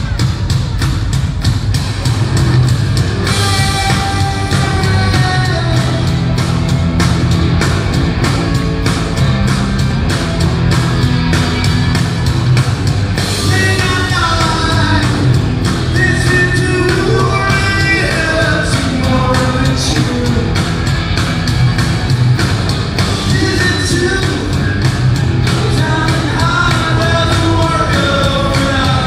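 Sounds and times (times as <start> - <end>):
electric guitars: 0.0 - 29.0
fast drum beat: 0.0 - 29.0
male lead vocal: 3.4 - 6.4, 13.3 - 20.8, 23.2 - 24.8, 25.4 - 29.0.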